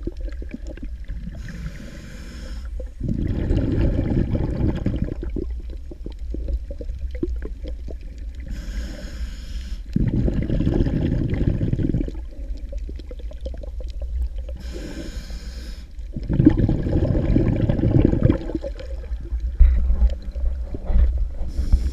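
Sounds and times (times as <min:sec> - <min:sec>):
exhaled bubbles rumbling: 0:00.0 - 0:09.1, 0:09.8 - 0:15.2, 0:15.9 - 0:21.9
low underwater rumble: 0:00.0 - 0:09.2, 0:09.8 - 0:21.9
regulator hissing inhale: 0:01.4 - 0:03.0, 0:08.4 - 0:10.0, 0:14.6 - 0:16.1, 0:21.4 - 0:21.9.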